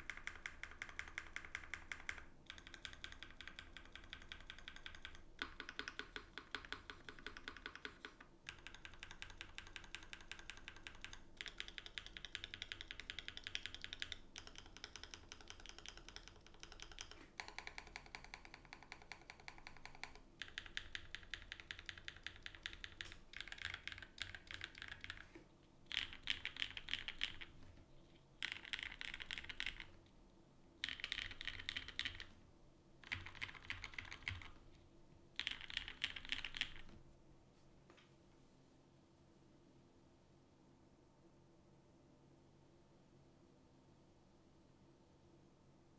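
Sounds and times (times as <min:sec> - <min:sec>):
mechanical keyboard typing: 0:00.0 - 0:27.7, 0:28.4 - 0:30.1, 0:30.8 - 0:32.4, 0:33.0 - 0:34.7, 0:35.4 - 0:37.0.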